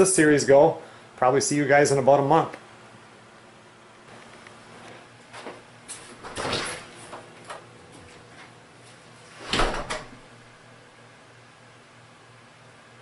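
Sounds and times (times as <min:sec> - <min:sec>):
knocks and clatter of door: 0:06.1 - 0:07.6, 0:09.5 - 0:10.2
door shutting thump: 0:09.4 - 0:10.2.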